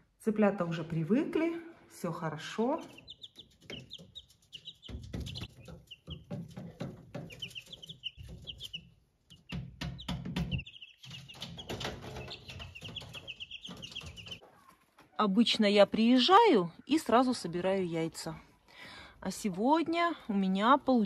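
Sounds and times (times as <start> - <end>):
chicks peeping: 2.5 - 15.2
rustling and knocks: 3.4 - 15.1.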